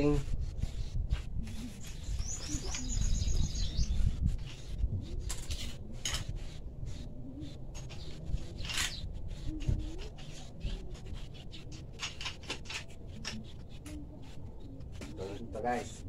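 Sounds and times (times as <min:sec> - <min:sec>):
metal scrapes and clicks: 0:07.7 - 0:14.0.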